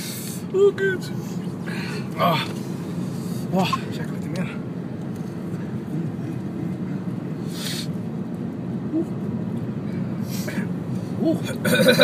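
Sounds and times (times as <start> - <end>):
car cabin rumble: 0.3 - 12.0.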